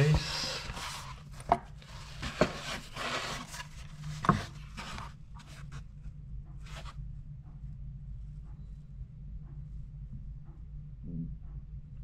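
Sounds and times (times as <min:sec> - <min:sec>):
fabric case rubbing and rustling: 0:00.0 - 0:05.8.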